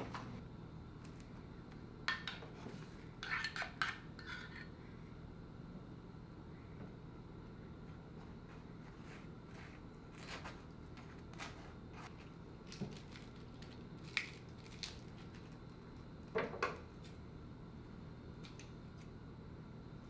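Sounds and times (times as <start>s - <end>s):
spoon scraping toasted bread: 3.2s - 4.7s.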